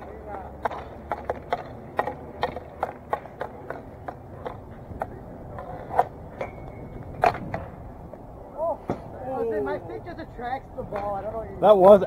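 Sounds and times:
hockey stick tapping ball: 0:00.5 - 0:07.7.

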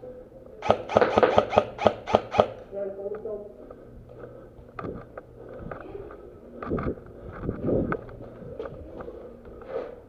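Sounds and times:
footsteps: 0:03.7 - 0:10.0.

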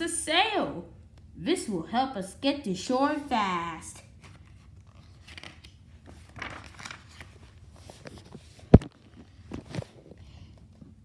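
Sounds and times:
paper page rustling: 0:04.1 - 0:10.1
book thump: 0:08.7 - 0:09.9.

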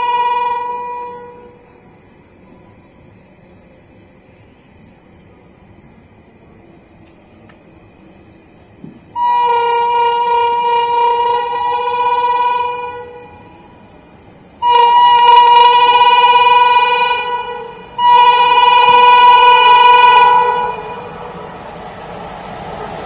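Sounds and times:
train horn blasts: 0:00.0 - 0:01.6, 0:09.1 - 0:13.7, 0:14.6 - 0:21.4.

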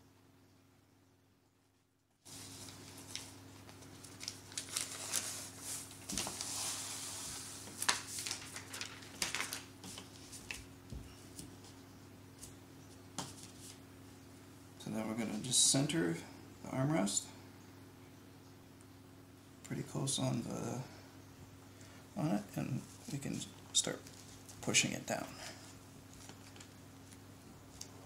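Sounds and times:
paper backing peeling off adhesive: 0:07.7 - 0:10.6
light taps and crinkles: 0:12.4 - 0:13.8, 0:26.1 - 0:28.0.

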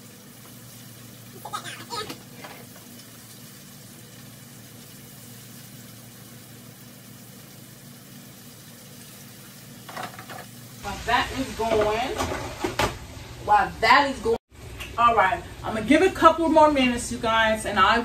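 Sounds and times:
oil sizzling in a deep fryer: 0:00.0 - 0:14.8
person speaking: 0:01.4 - 0:02.2
kitchen things clattering: 0:09.8 - 0:10.5, 0:11.6 - 0:13.0.

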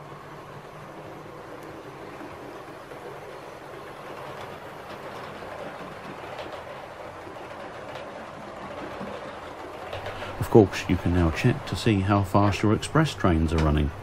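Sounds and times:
model train whirring on rails: 0:00.0 - 0:14.0
faint clicks: 0:01.5 - 0:10.4.

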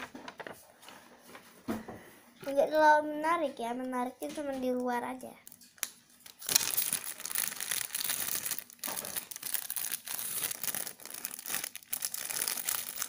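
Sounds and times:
plastic packaging crinkling: 0:05.5 - 0:13.0.

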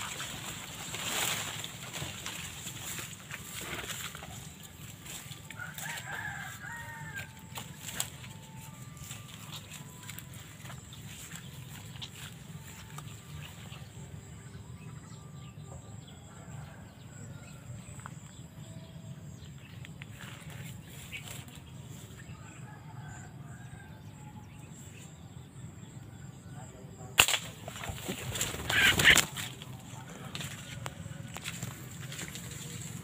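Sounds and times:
rustling and flapping in leaves: 0:00.0 - 0:14.0, 0:27.2 - 0:33.0
sharp crack: 0:27.1 - 0:27.7.

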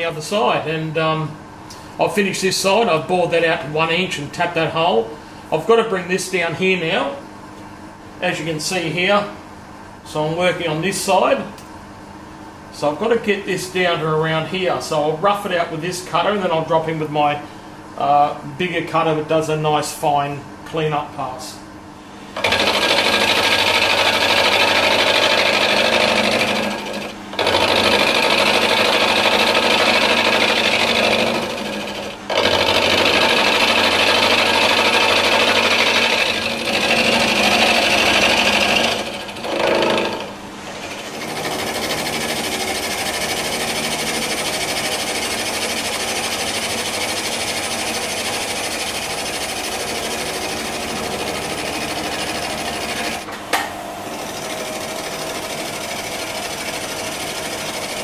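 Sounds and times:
milling machine steady cut: 0:22.3 - 0:58.0
milling machine grinding chatter: 0:22.4 - 0:53.3, 0:54.0 - 0:58.0.

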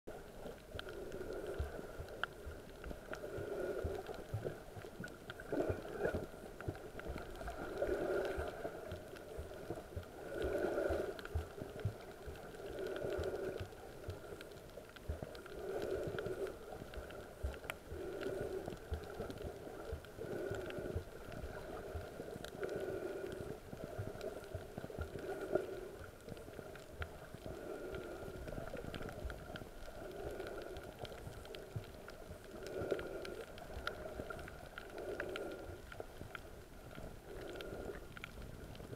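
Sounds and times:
faint crackle of clicks in water: 0:00.1 - 0:38.9.

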